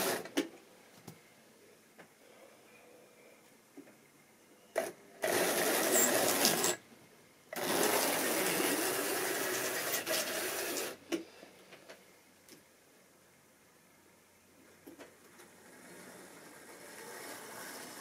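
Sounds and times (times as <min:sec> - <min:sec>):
model locomotive whirring rattle: 0:04.8 - 0:06.8, 0:07.6 - 0:11.0, 0:15.3 - 0:18.0.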